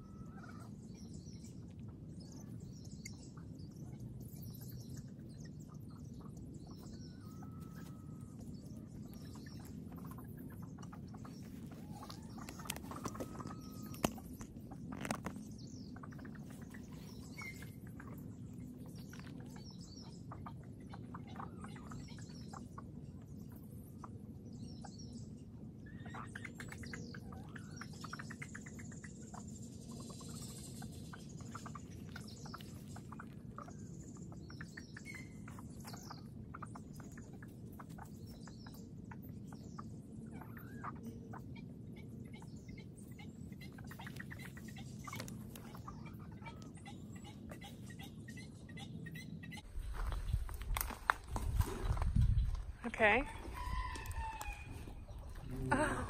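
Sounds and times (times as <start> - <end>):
birds chirping: 0.0 - 56.0
low outdoor hum: 0.0 - 56.0
rabbit nibbling grass: 7.0 - 21.6, 30.2 - 34.4, 43.6 - 48.0.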